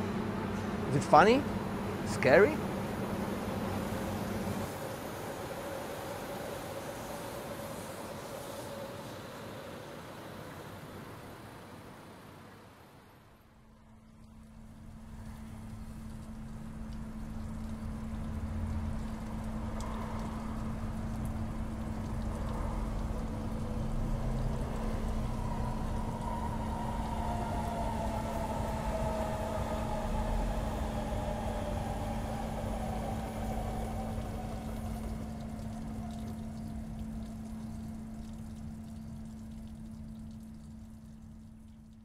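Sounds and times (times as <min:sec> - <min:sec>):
low hum drone: 0:13.2 - 0:42.0
rumbling noise: 0:17.3 - 0:38.2.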